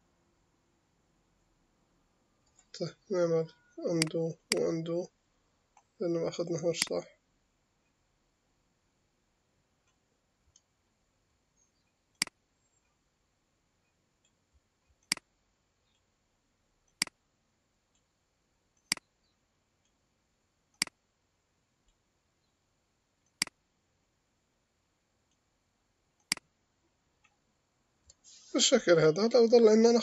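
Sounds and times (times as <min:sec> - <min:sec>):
computer mouse clicks: 0:11.8 - 0:13.0, 0:14.2 - 0:16.0, 0:18.8 - 0:19.1, 0:20.7 - 0:21.0, 0:23.2 - 0:23.6, 0:26.2 - 0:26.5.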